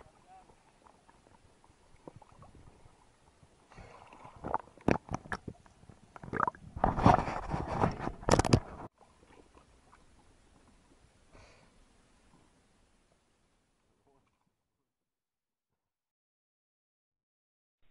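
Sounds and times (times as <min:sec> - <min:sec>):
sea water splashing and gurgling: 0:00.0 - 0:07.5.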